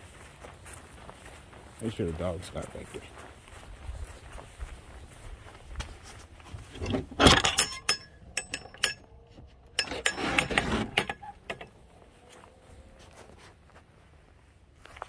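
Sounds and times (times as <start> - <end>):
gate clattering and knocking: 6.7 - 9.1, 9.7 - 11.7
metal gate latch clinking: 7.2 - 11.8.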